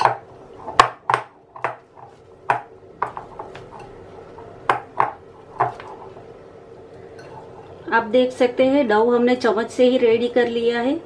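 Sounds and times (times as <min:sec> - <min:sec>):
spoon clinking against glass bowl: 0:07.2 - 0:07.4.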